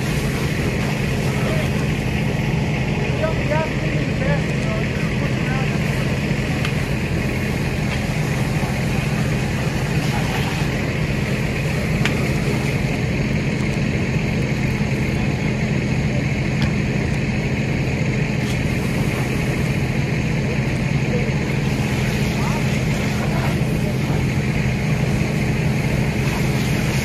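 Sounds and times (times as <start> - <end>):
diesel engine idling high: 0.0 - 27.0.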